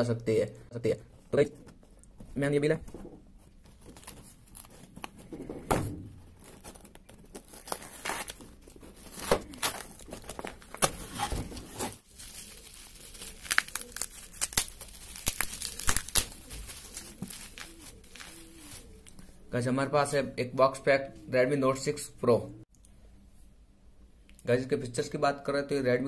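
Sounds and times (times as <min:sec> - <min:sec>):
packing tape ripping off cardboard: 0:06.0 - 0:19.1
plastic wrapping crinkling: 0:06.1 - 0:19.3.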